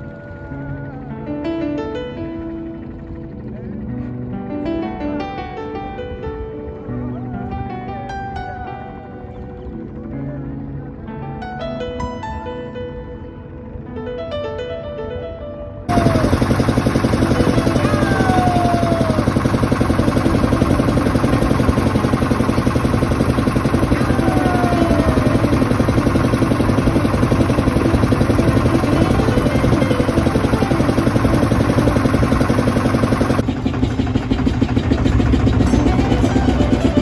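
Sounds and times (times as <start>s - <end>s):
motorboat engine running: 0.0s - 11.4s, 15.9s - 37.0s
gull cries: 17.6s - 19.3s, 23.9s - 25.5s.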